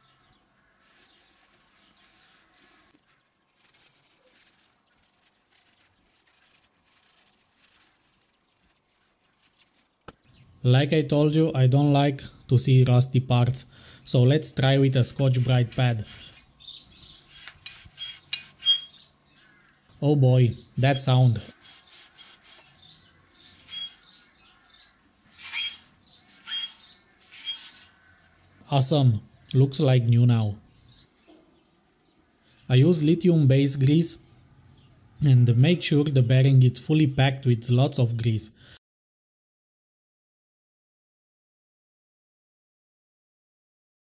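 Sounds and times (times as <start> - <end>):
cloth rag rustling: 0.6 - 10.1, 21.3 - 24.3, 25.2 - 28.0
abrasive pad scrubbing metal: 0.7 - 9.8, 15.0 - 16.4, 17.2 - 19.0, 20.8 - 24.2, 25.3 - 28.0
high squeak: 17.9 - 19.0, 23.5 - 24.1, 25.3 - 27.9.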